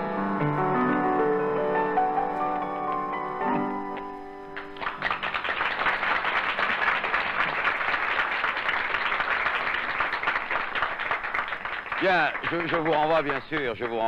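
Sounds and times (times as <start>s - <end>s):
accordion and piano chord: 0.0s - 5.0s
audience applause: 4.6s - 14.0s.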